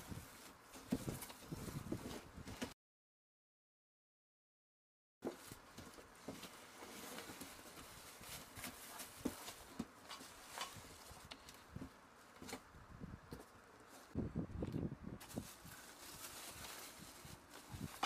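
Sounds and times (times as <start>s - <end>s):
soft rustling: 15.2s - 18.0s.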